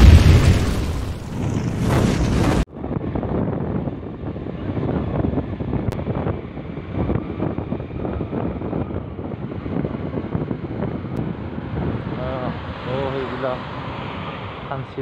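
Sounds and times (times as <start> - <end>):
road and engine noise: 0.0 - 15.0
wind buffeting microphone: 0.0 - 15.0.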